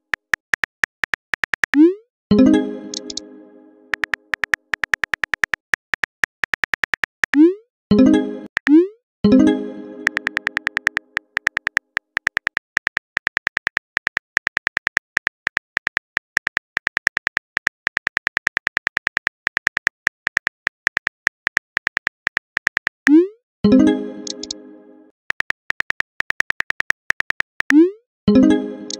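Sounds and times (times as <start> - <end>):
phone keyboard clicks: 0.0 - 1.8, 2.9 - 3.2, 3.9 - 7.4, 10.0 - 23.0, 24.2 - 24.6, 25.3 - 27.8.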